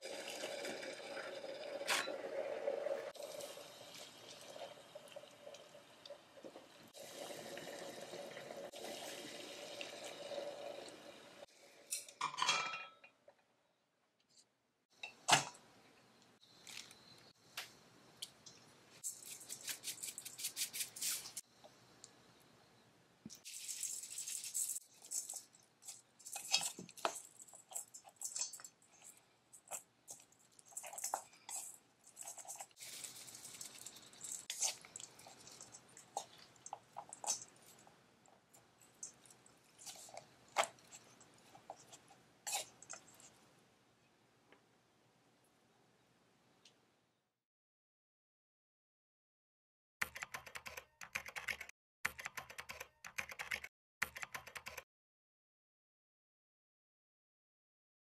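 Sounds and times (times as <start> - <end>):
rustling: 23.5 - 37.9.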